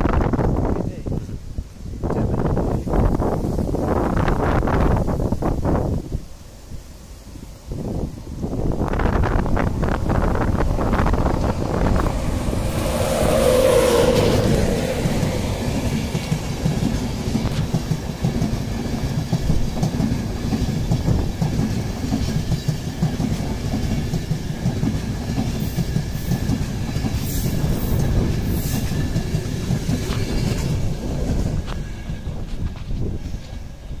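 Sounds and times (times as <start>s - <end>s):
electric locomotive humming: 0.0s - 34.0s
train wheels rumbling and clattering: 7.6s - 34.0s.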